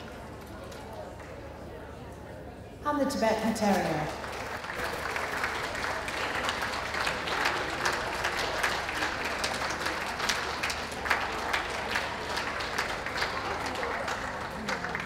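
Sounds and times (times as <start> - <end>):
audience applauding: 0.0 - 1.5, 3.9 - 15.0.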